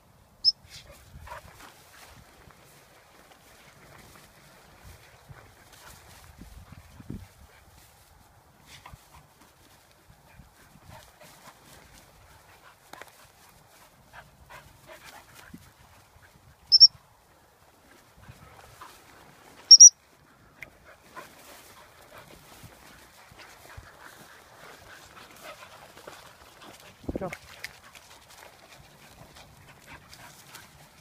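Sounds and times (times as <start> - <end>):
rustling through grass: 0.6 - 16.6, 17.2 - 31.0
shrill whistle pips: 16.7 - 16.9, 19.7 - 19.9.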